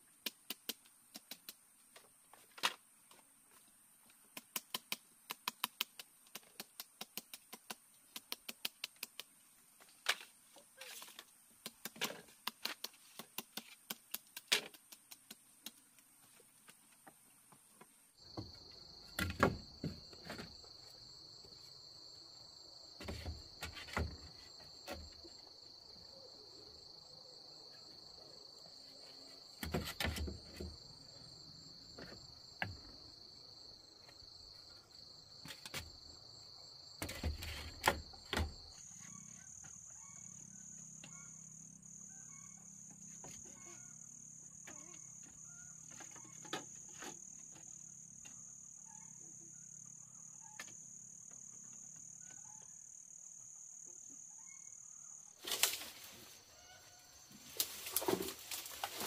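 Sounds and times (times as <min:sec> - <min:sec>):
sharp clicks and taps: 0:04.4 - 0:09.3
insects trilling: 0:18.2 - 0:59.0.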